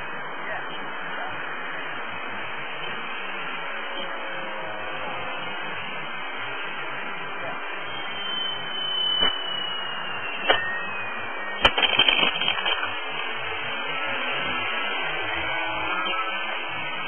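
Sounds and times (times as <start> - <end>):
distant model plane motor whine: 0.0 - 17.0
crackling burst: 8.8 - 15.5
sharp clicks: 11.6 - 12.9.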